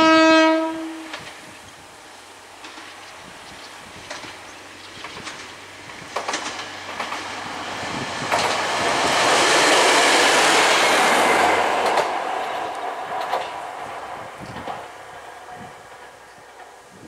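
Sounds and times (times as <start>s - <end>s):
diesel railcar passing: 0.0s - 17.0s
wheel clicks over rail joints: 4.0s - 7.4s, 8.2s - 8.7s, 11.8s - 13.6s.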